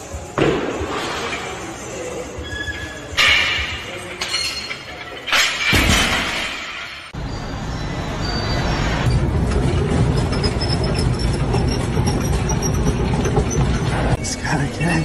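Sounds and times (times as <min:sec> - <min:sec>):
cart wheels whining on belt: 0:08.3 - 0:14.2
treadmill running: 0:09.1 - 0:14.2.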